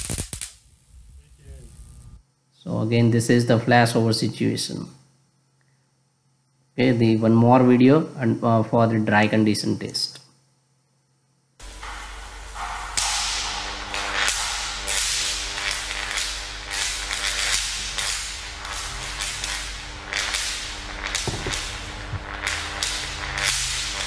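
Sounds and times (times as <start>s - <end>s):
electric arcs cracking: 0.0s - 2.2s, 11.6s - 24.0s
steady low hum: 0.4s - 9.2s, 10.4s - 24.0s.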